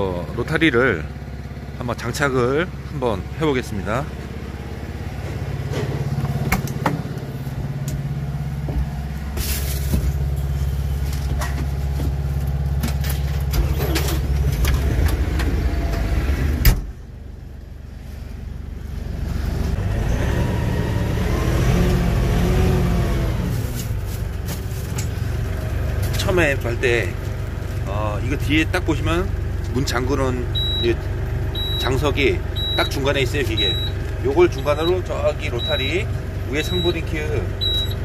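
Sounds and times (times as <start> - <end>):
tractor diesel engine idling: 0.0 - 16.2, 16.9 - 19.8, 23.4 - 38.0
knocks in tractor cab: 5.9 - 7.2
cab door shutting with a bang: 16.6 - 17.0.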